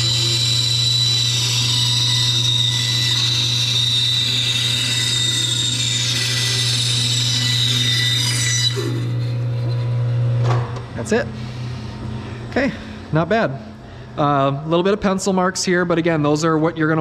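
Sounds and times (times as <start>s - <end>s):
band saw cutting wood: 0.0s - 10.3s.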